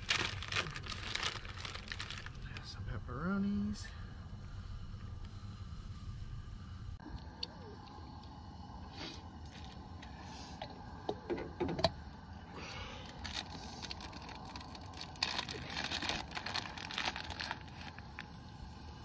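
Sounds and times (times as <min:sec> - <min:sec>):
plastic bag crinkling: 0:00.0 - 0:02.6, 0:13.1 - 0:18.3.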